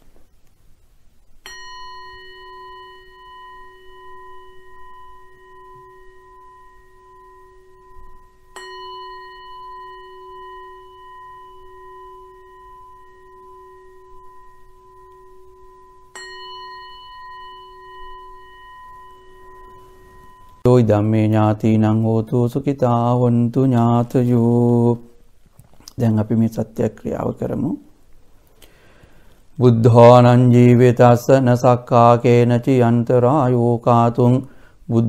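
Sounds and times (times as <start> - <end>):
singing bowl ringing: 1.4 - 20.7.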